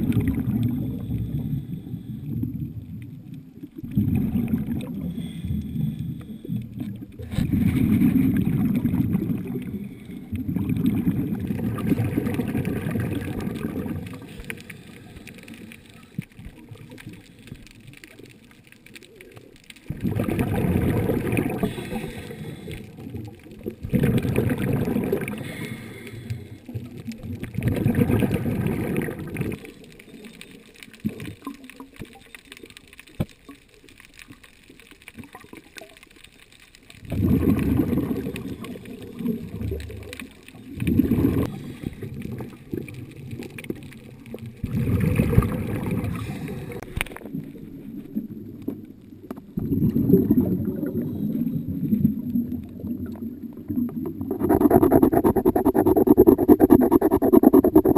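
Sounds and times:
diver's exhaled bubbles rushing: 0:00.0 - 0:03.0, 0:03.6 - 0:14.8, 0:19.8 - 0:25.7, 0:26.8 - 0:29.8, 0:37.0 - 0:46.9, 0:49.5 - 0:57.9.

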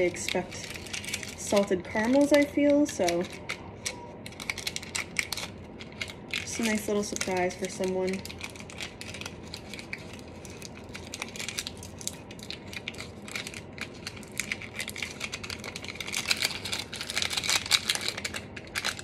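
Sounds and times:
parchment paper crinkling: 0:00.0 - 0:19.0.

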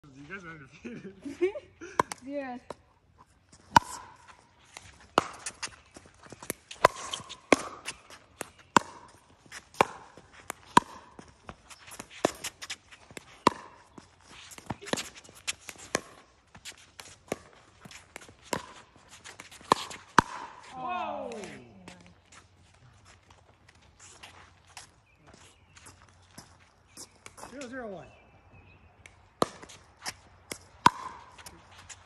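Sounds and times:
footsteps on hard court: 0:03.2 - 0:28.8, 0:29.4 - 0:32.0
paddles hitting ball: 0:03.6 - 0:22.1, 0:29.0 - 0:32.0.

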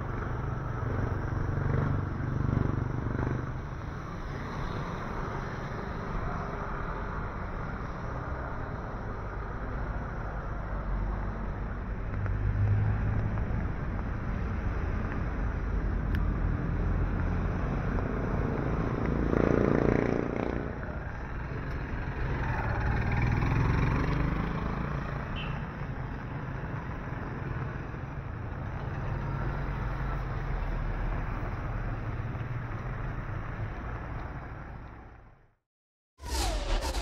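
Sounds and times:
vehicles passing on wet road: 0:07.9 - 0:25.3.

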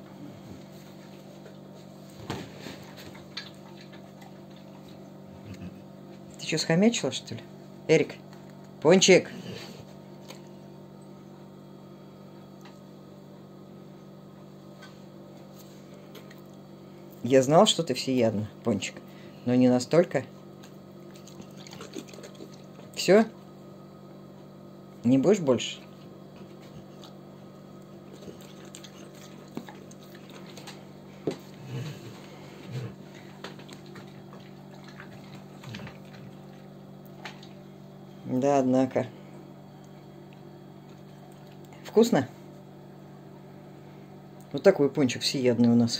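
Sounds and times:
dog licking and smacking: 0:20.6 - 0:23.0, 0:27.8 - 0:30.8, 0:33.1 - 0:37.6.

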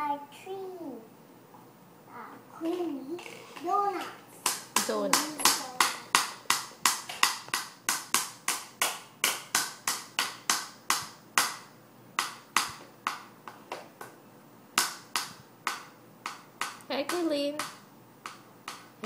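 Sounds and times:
hand claps: 0:04.5 - 0:13.6.

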